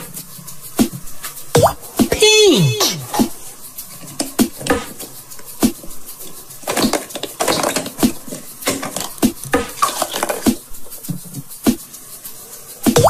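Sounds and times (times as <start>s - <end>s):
plastic rubbing: 3.0s - 13.0s.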